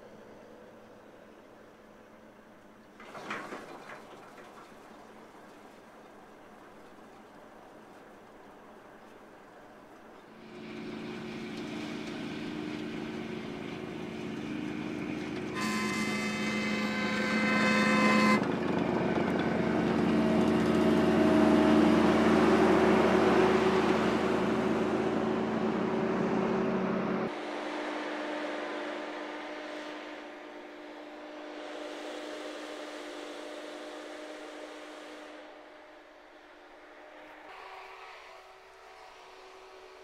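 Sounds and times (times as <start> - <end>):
engine hum: 0.0 - 40.0
train horn: 10.4 - 24.3, 27.3 - 36.3
snow blower rushing: 10.4 - 35.2.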